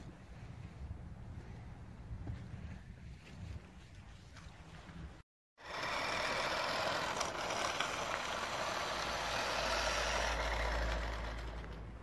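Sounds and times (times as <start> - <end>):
toy truck electric motor whirr: 5.6 - 12.0.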